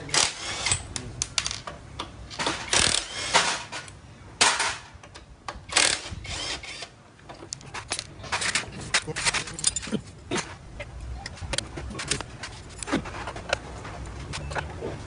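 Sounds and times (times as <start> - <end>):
impact wrench bursts: 2.4 - 3.7.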